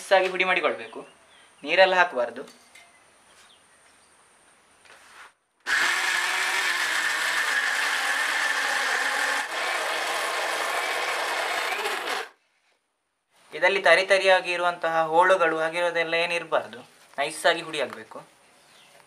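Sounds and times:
electric mixer grinder running: 0:05.7 - 0:12.4.

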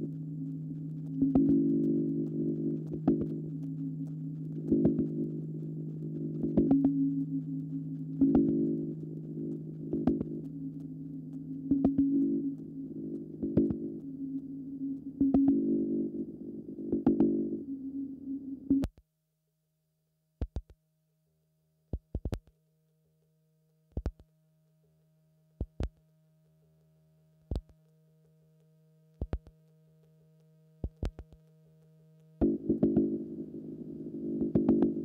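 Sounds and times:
dense low drone: 0:00.0 - 0:18.8
thin steady tones: 0:00.0 - 0:18.8
faint low hum: 0:00.0 - 0:35.0.

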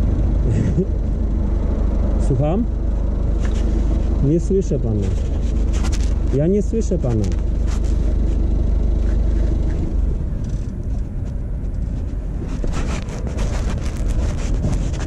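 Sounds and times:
van engine idling: 0:00.0 - 0:15.0
rustling: 0:03.3 - 0:04.2, 0:05.0 - 0:06.4, 0:07.1 - 0:15.0.

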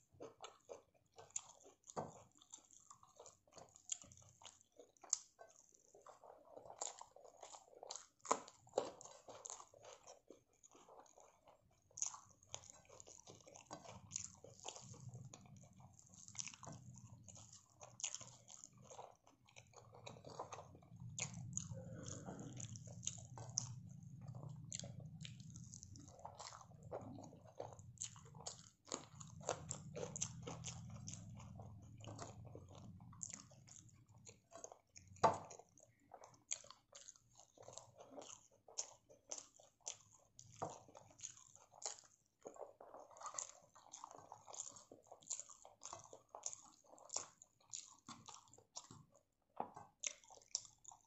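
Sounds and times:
chewing and crunching: 0:00.0 - 0:51.0.

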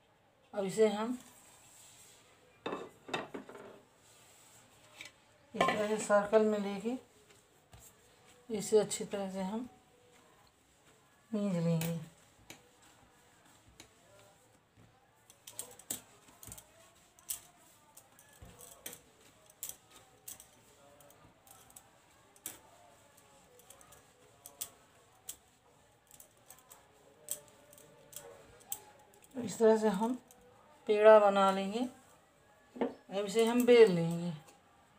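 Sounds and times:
hands kneading dough: 0:05.8 - 0:34.9
bangles clinking: 0:15.2 - 0:30.5.

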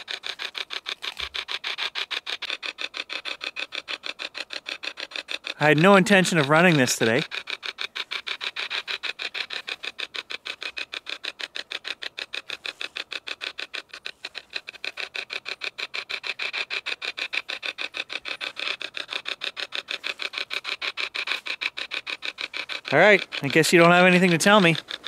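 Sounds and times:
radio static chopping: 0:05.6 - 0:07.2, 0:22.8 - 0:24.9.

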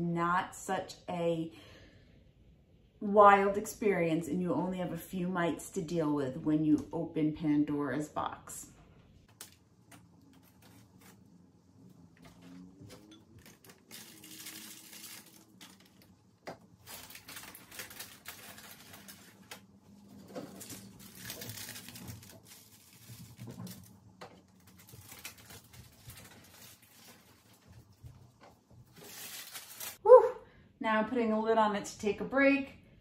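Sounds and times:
paper rustling: 0:09.3 - 0:30.0.

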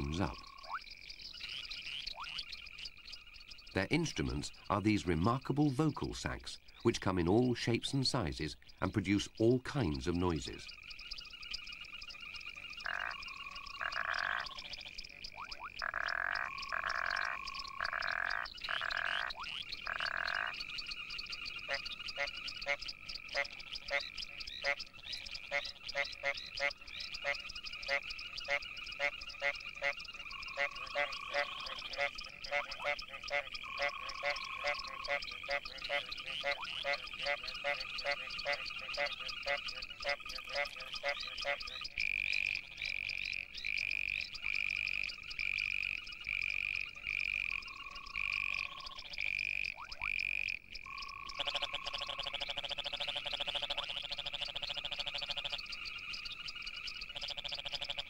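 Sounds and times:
frog chorus: 0:00.0 - 0:58.0
frogs pulsed calls: 0:00.0 - 0:58.0.

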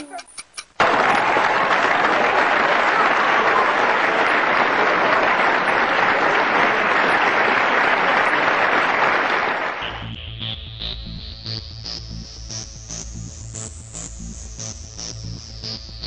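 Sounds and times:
crowd applauding: 0:00.8 - 0:10.1.

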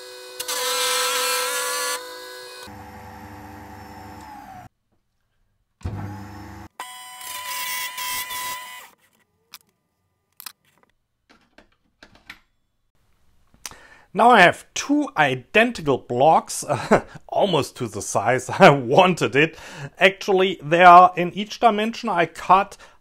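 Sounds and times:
table saw cutting plastic: 0:00.0 - 0:04.7, 0:05.8 - 0:09.0.

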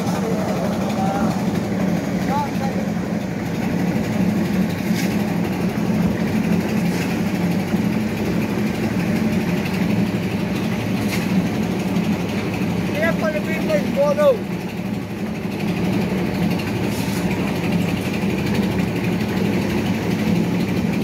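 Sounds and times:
engine running steadily: 0:00.0 - 0:21.0.

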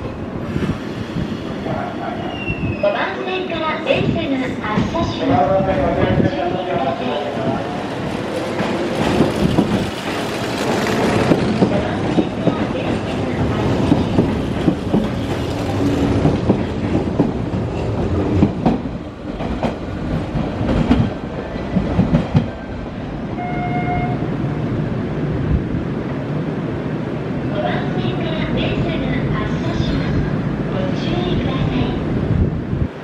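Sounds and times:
rumbling track noise: 0:00.0 - 0:33.0
train wheels clattering over rail joints: 0:08.5 - 0:22.6.

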